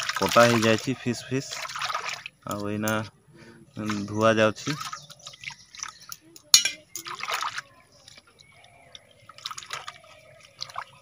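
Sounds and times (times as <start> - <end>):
water splashing in a pot: 0.0 - 3.1, 3.8 - 11.0
sharp clink: 6.6 - 6.8.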